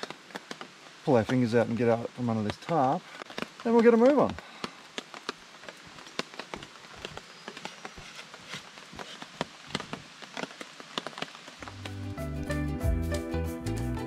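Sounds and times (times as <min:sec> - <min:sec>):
rain drops tapping on a tarp: 0:00.0 - 0:12.6
music: 0:11.6 - 0:14.0.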